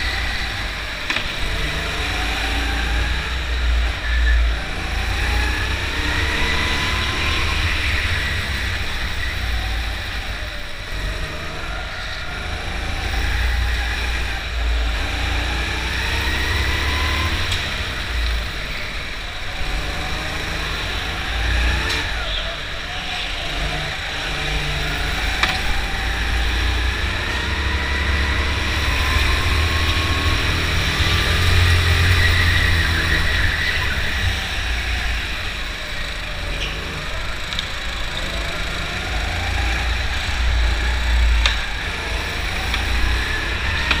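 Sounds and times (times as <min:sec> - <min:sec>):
go-kart engine revving: 0:00.0 - 0:44.0.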